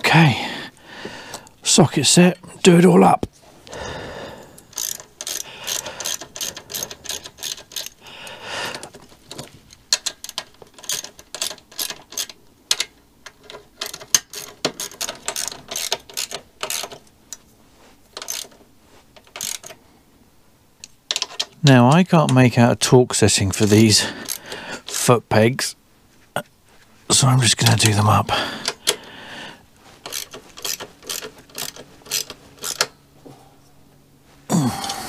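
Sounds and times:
ratchet wrench clicking: 0:04.7 - 0:08.0, 0:08.8 - 0:17.1, 0:18.2 - 0:18.6, 0:19.2 - 0:19.8, 0:23.6 - 0:25.1, 0:30.0 - 0:32.9.

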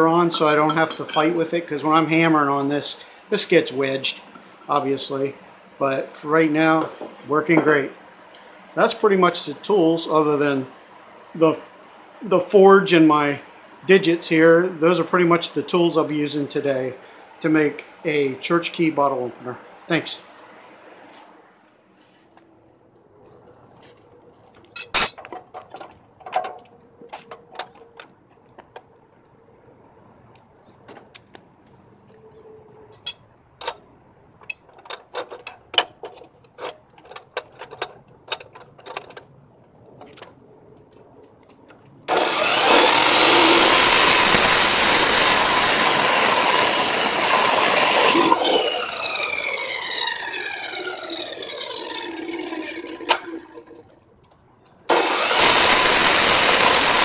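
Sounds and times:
tools knocking and clicking: 0:00.3 - 0:01.3, 0:24.8 - 0:26.6, 0:34.4 - 0:39.3
gas forge burner roaring: 0:42.1 - 0:53.8.

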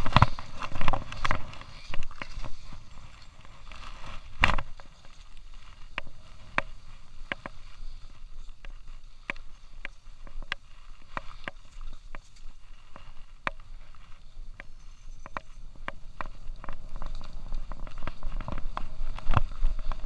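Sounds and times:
ski scrape: 0:00.0 - 0:20.0
skis running over snow: 0:00.0 - 0:20.0.

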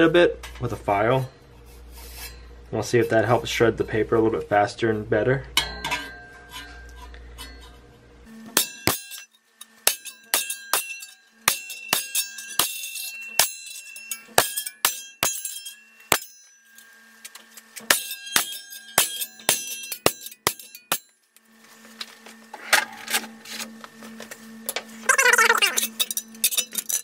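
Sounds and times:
saw blade ringing: 0:05.6 - 0:07.9, 0:08.5 - 0:17.3, 0:17.9 - 0:21.2.

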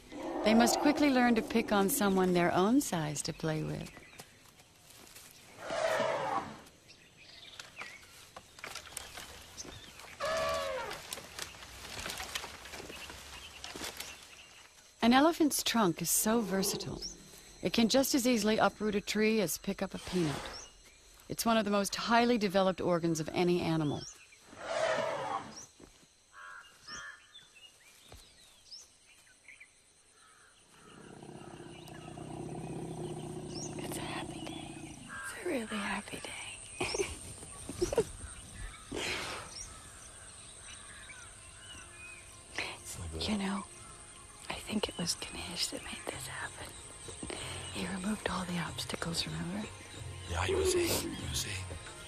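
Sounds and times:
small birds chirping: 0:00.0 - 0:52.0
crows cawing: 0:10.2 - 0:11.2, 0:26.3 - 0:27.3, 0:35.1 - 0:35.5.

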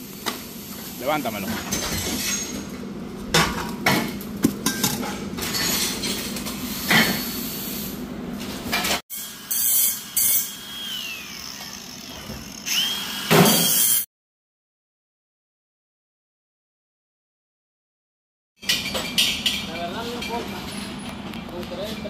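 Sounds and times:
angle grinder grinding metal: 0:09.1 - 0:14.0.

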